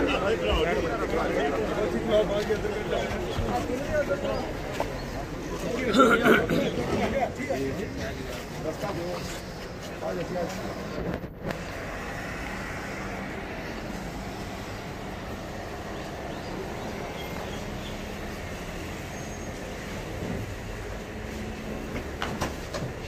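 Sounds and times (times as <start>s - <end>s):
car engine and tyre rumble: 7.0s - 23.0s.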